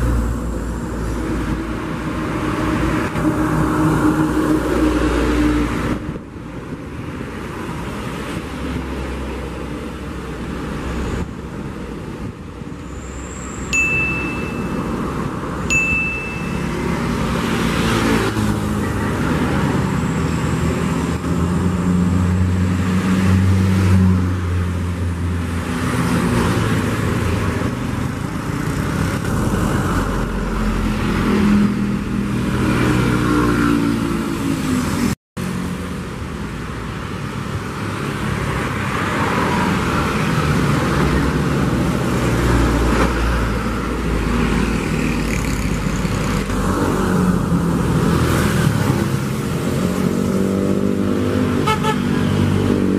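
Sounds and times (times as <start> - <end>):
diesel engines of heavy traffic: 0.0 - 52.9
short high ding: 13.8 - 14.9, 15.7 - 16.9.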